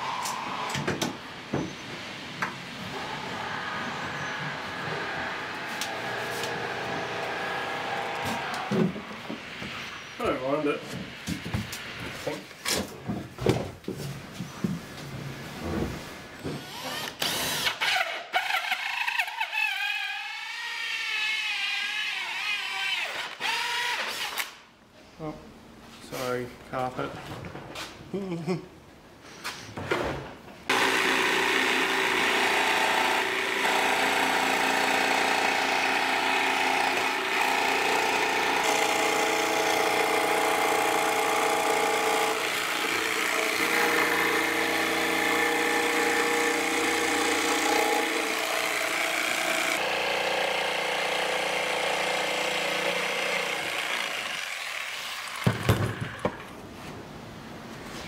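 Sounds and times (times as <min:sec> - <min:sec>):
jigsaw cutting plywood: 0:30.7 - 0:56.3.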